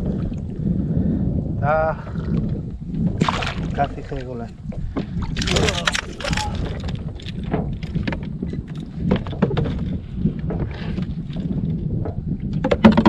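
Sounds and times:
wind and water rumble: 0.0 - 13.0
knocks and clicks of tackle: 4.8 - 13.0.

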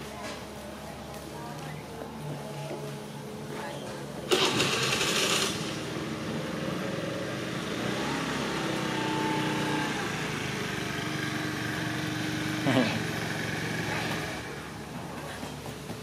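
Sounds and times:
scooter engine idling: 4.3 - 16.0.

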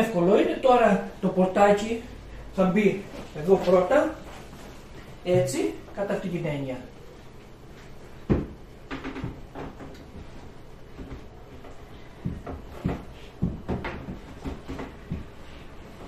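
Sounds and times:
wooden door knocking on dishwasher: 8.3 - 9.9, 12.2 - 15.3.

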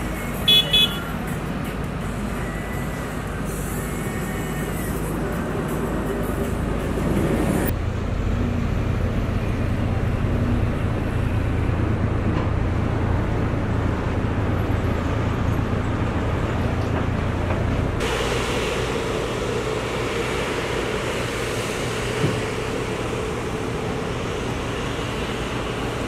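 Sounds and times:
diesel construction machinery droning: 0.0 - 26.0
road traffic noise: 0.0 - 26.0.

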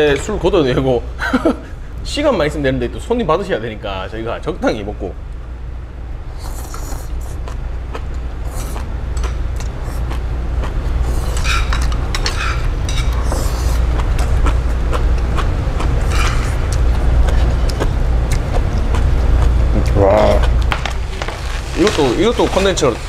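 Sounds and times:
steady low rumble: 0.0 - 23.0
cutlery and dishes clinking: 11.4 - 13.2.

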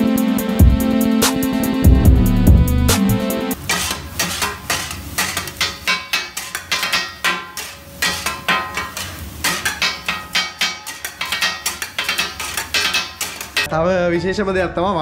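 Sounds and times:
metal utensils clanking: 3.6 - 13.7.

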